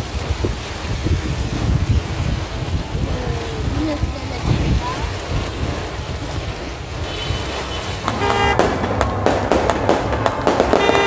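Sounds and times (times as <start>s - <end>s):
fireworks cracking: 0.0s - 11.0s
rain: 0.0s - 11.0s
wind: 0.0s - 11.0s
horns tooting: 7.0s - 8.6s, 10.8s - 11.0s.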